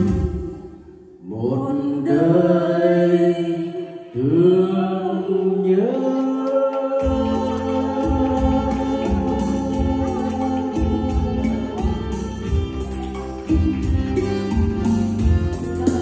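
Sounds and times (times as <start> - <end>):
karaoke backing track with drums: 0.0 - 1.1, 5.7 - 16.0
man and woman singing duet: 0.0 - 12.6.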